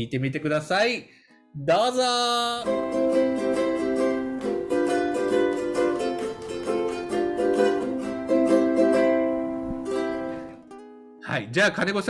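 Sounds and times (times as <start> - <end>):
ukulele strumming chords: 2.6 - 11.2.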